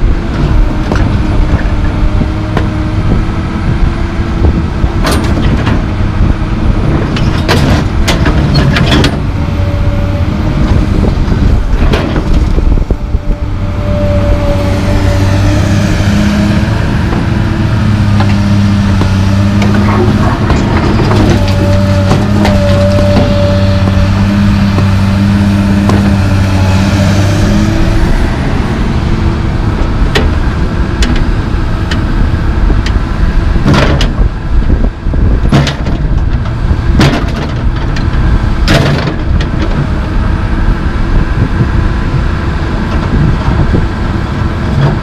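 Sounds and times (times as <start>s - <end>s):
high whine: 0.0s - 35.5s
excavator diesel engine: 0.0s - 45.0s.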